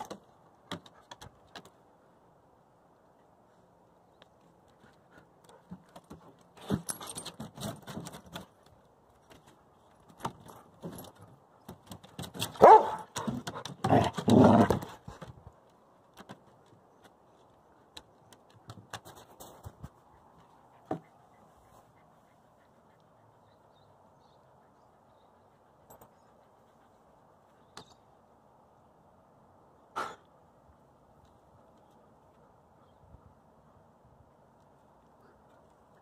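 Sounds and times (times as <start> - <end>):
collar tags jingling: 6.6 - 7.8
dogs barking: 12.6 - 13.1.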